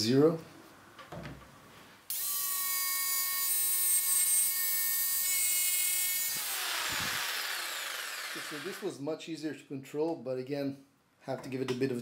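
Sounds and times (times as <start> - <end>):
jigsaw cutting wood: 5.6 - 8.9.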